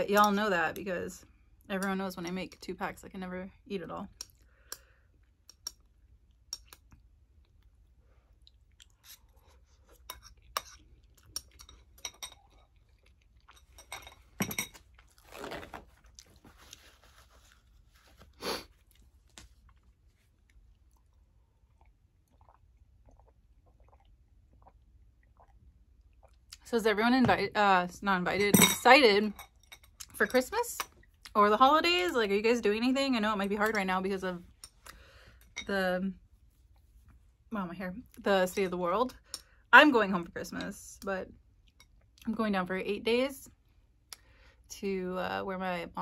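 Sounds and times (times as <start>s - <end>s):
chewing and wet mouth sounds: 4.1s - 14.0s, 15.9s - 26.7s, 41.3s - 42.3s.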